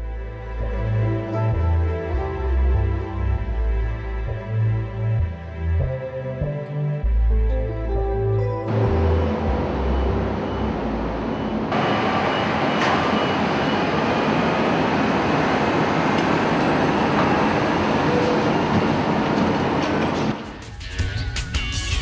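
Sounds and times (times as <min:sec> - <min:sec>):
cargo-handling machinery din: 0:08.7 - 0:20.6.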